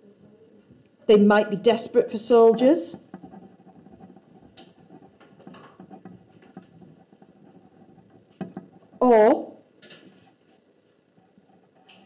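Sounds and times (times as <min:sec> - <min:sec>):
pen scratching on paper: 0:01.6 - 0:09.0.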